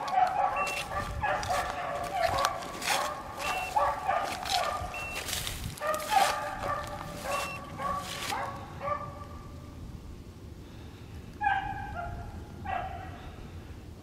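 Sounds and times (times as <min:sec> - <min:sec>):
hounds baying: 0:00.0 - 0:09.4, 0:11.4 - 0:13.2.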